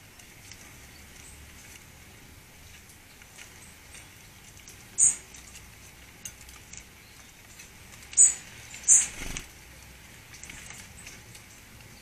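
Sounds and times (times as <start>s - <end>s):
high-pitched bird calls: 5.0s - 5.3s, 8.1s - 9.4s.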